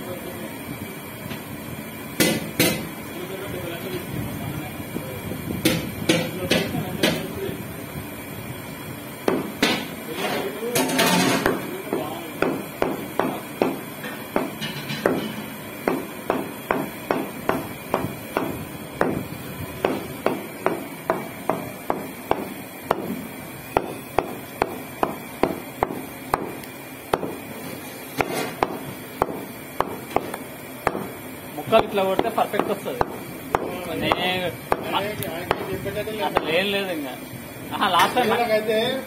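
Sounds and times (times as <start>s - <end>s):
meat cleaver chopping on wood block: 2.2s - 2.8s, 9.3s - 9.9s, 11.4s - 19.2s, 19.8s - 23.2s, 23.8s - 27.4s, 28.2s - 31.2s, 31.8s - 36.6s.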